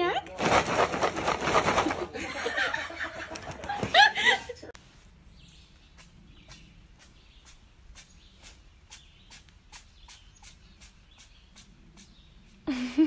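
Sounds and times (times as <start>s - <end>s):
person laughing: 2.0s - 4.7s, 12.7s - 13.0s.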